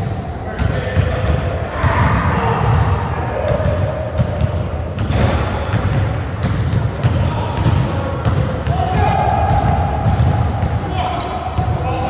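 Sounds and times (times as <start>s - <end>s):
shoe squeak: 0.0s - 0.8s, 2.5s - 3.8s, 5.6s - 6.7s, 11.1s - 11.5s.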